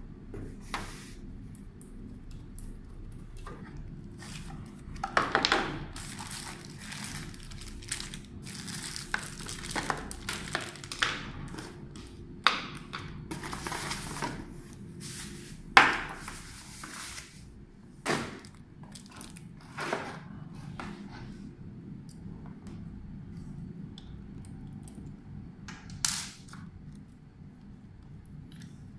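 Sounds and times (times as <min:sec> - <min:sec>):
plastic wrapping crinkling: 0:05.4 - 0:11.8, 0:18.3 - 0:19.6.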